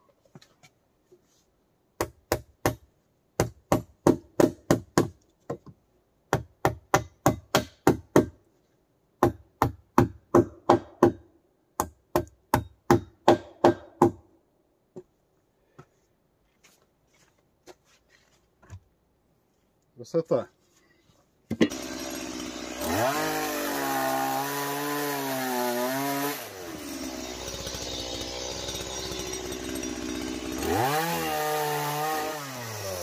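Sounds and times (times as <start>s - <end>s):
hand tool striking wood: 3.4s - 8.4s, 9.2s - 11.2s, 11.8s - 14.2s, 21.5s - 21.8s.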